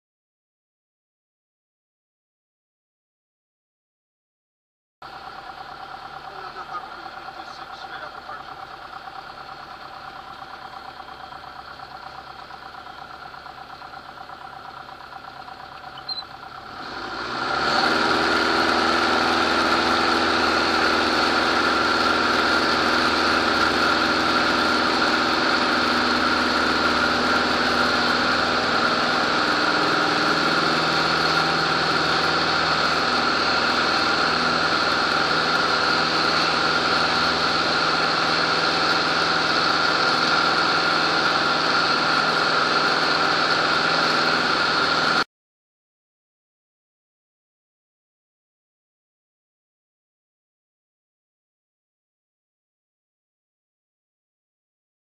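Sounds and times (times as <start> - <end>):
light aircraft engine and propeller: 5.1 - 45.2.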